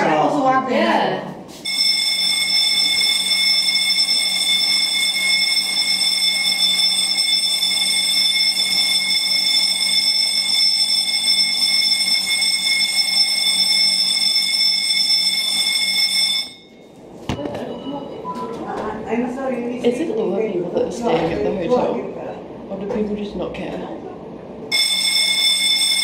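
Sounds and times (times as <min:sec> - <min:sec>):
fire alarm ringing: 0:01.6 - 0:18.2, 0:24.7 - 0:26.0.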